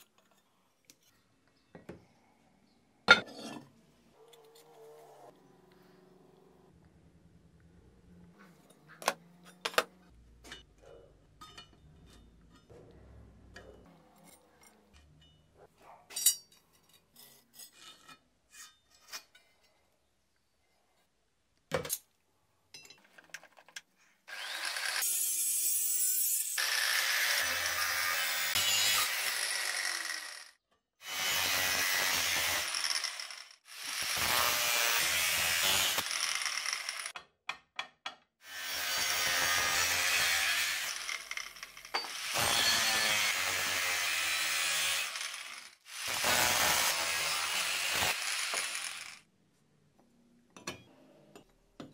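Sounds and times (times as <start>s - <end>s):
power tool working metal: 24.3s - 37.1s, 38.5s - 49.2s.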